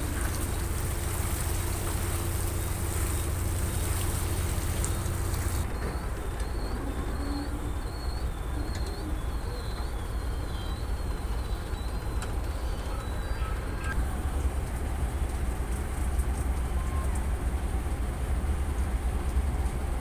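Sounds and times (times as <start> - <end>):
water washing: 0.0 - 5.8, 10.8 - 20.0
boat engine rumble: 0.0 - 20.0
faint high chirps: 1.4 - 14.0.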